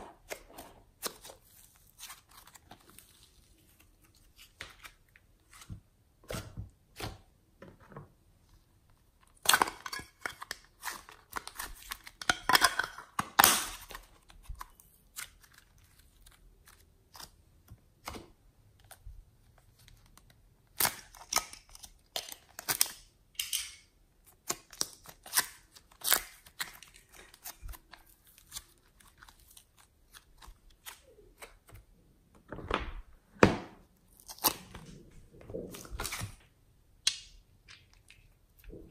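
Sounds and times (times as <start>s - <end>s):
slime crackling and tearing: 34.0s - 34.9s.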